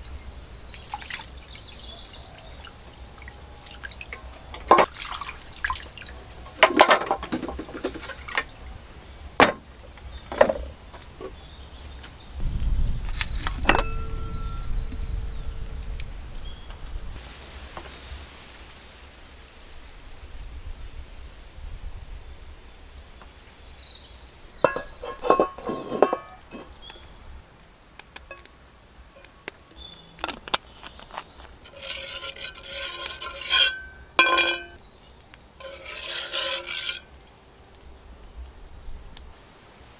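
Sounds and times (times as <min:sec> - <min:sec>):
birds chirping: 0:00.0 - 0:06.4, 0:10.0 - 0:18.8, 0:21.6 - 0:27.6, 0:29.2 - 0:37.1
low rumble: 0:12.4 - 0:17.3
clams clinking in a steel bowl: 0:13.6 - 0:14.9, 0:24.6 - 0:26.7, 0:31.6 - 0:34.8, 0:35.6 - 0:37.1.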